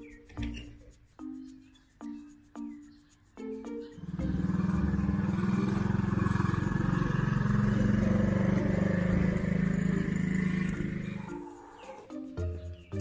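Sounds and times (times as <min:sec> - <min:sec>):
small quad bike engine running: 0:04.0 - 0:12.0.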